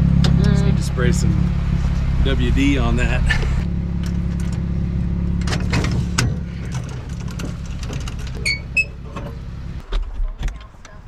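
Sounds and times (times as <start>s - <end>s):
vehicle engine idling: 0.0s - 9.9s
jack squeaking: 5.4s - 9.5s.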